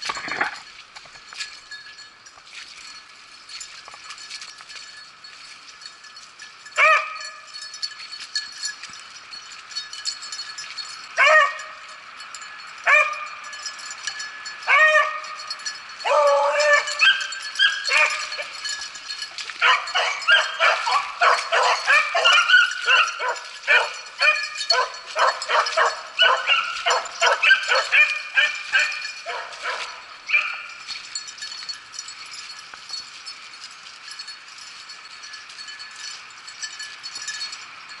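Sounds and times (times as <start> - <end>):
beagles baying and yelping: 6.8 - 7.5, 11.0 - 11.9, 12.8 - 31.1.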